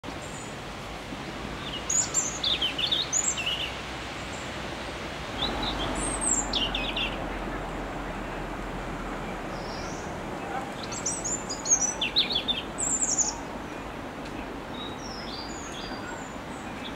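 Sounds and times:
steady background noise: 0:00.0 - 0:16.9
robin singing: 0:01.6 - 0:04.5, 0:05.4 - 0:07.4, 0:09.3 - 0:16.9.

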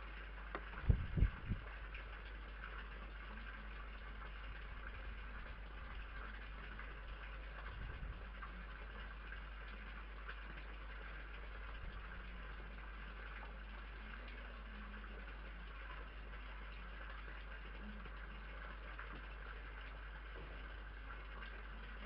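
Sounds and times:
low electrical hum: 0:00.0 - 0:22.0
soft low thumps: 0:00.6 - 0:01.8.

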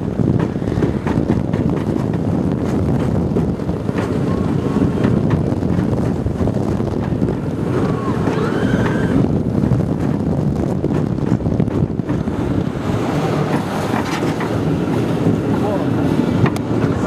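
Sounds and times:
roller coaster cars knocking: 0:00.0 - 0:17.0
roller coaster rumbling on steel track: 0:00.0 - 0:17.0
wind rushing over microphone: 0:00.0 - 0:17.0.

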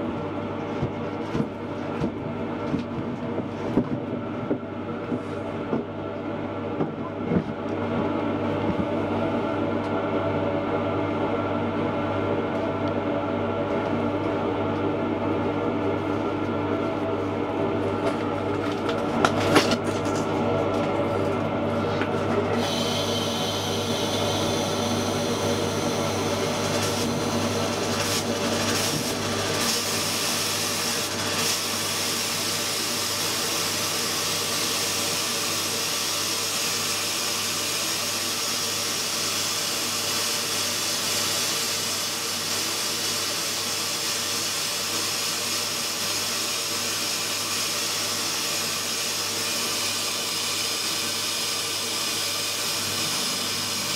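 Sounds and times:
droning hum: 0:00.0 - 0:33.6, 0:52.3 - 0:53.9
sandblasting gun hissing: 0:22.6 - 0:27.2.

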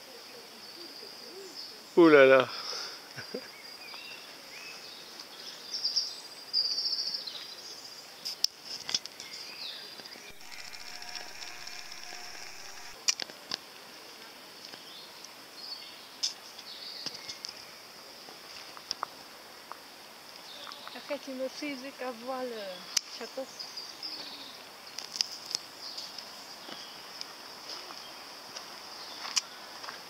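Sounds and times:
sharp clicks: 0:10.3 - 0:13.2.

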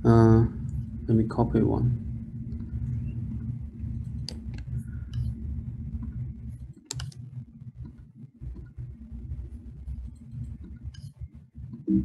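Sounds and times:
low hum: 0:00.0 - 0:12.0
mouse and keyboard clicks: 0:06.8 - 0:07.2.

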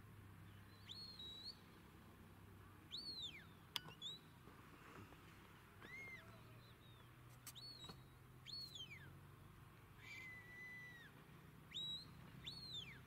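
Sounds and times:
faint shepherd's whistle: 0:00.8 - 0:01.6, 0:05.8 - 0:09.1, 0:11.7 - 0:13.0.

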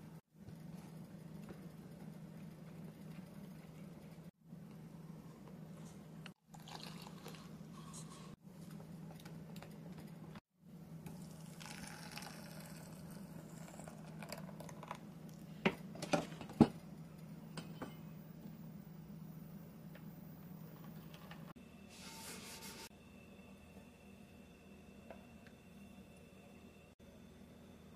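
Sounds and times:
soft liquid pour: 0:06.5 - 0:07.6, 0:11.1 - 0:15.5.

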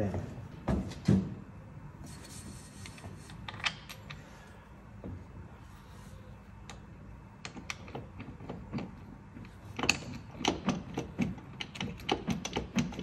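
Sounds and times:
metallic clicks of nuts on bolts: 0:09.8 - 0:13.0.

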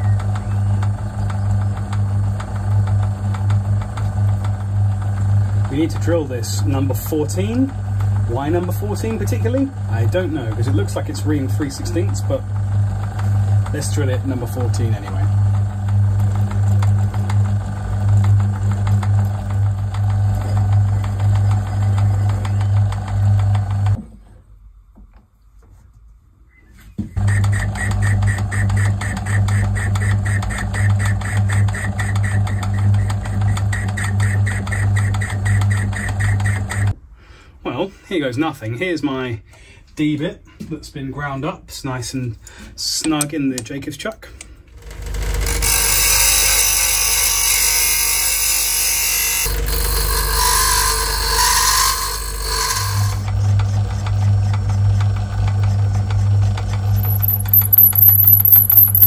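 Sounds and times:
lathe motor humming: 0:00.0 - 0:24.0, 0:27.2 - 0:36.9, 0:44.7 - 0:59.0
bench grinder grinding metal: 0:27.2 - 0:36.9, 0:44.8 - 0:59.0
rapid even ticking: 0:56.8 - 0:59.0.

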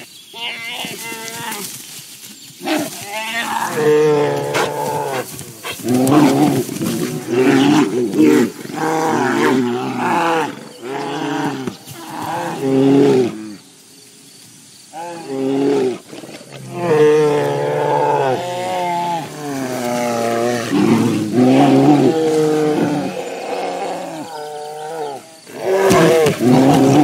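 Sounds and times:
bears roaring: 0:02.7 - 0:13.6, 0:15.0 - 0:27.0.

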